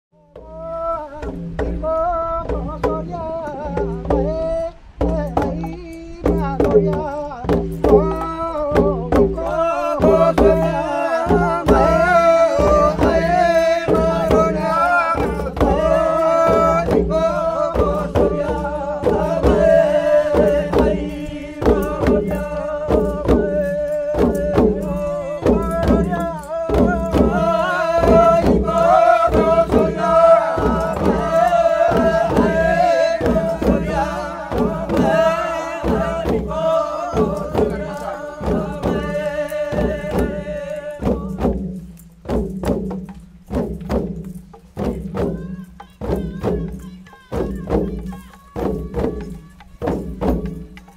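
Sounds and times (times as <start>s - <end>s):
wooden hand drums: 0.2s - 50.9s
group chanting in unison: 9.4s - 23.6s, 24.2s - 41.4s.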